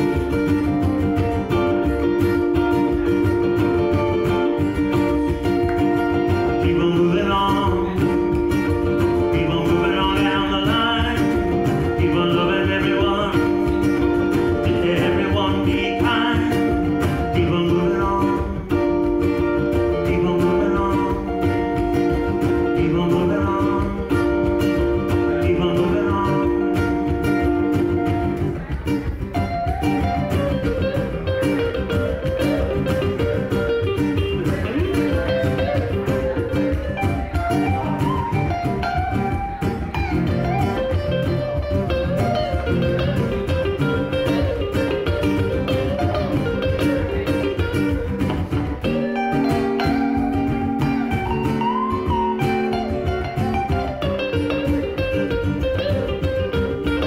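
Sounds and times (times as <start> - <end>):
picked guitar melody: 0.0 - 57.0
strummed rhythm guitar chords: 0.0 - 57.0.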